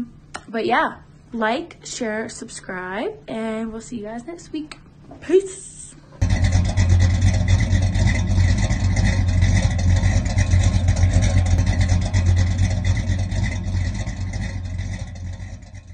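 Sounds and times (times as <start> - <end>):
car engine rumbling: 6.1 - 15.9.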